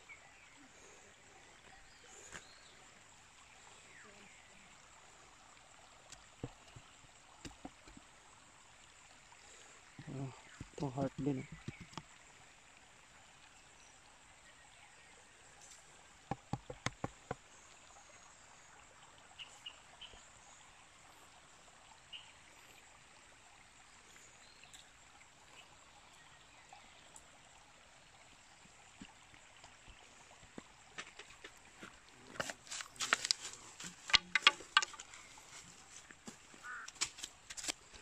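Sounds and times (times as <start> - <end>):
creek water rushing: 0.0 - 38.0
sharp taps: 16.3 - 17.4.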